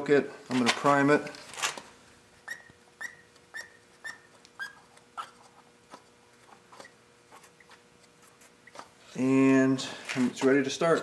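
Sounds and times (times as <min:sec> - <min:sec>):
primer bulb squeaks: 0:02.4 - 0:08.9.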